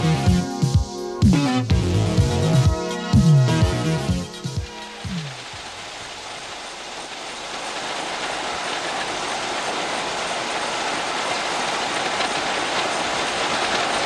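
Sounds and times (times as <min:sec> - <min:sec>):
potatoes rattling onto conveyor belts: 0:07.5 - 0:14.0.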